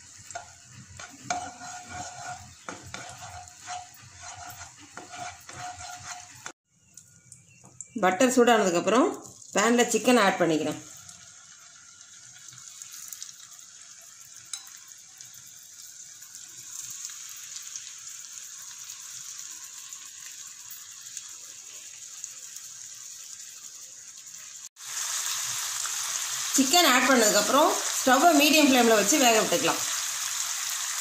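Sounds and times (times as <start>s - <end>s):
chicken sizzling in a pan: 0.0s - 8.0s, 8.6s - 31.0s.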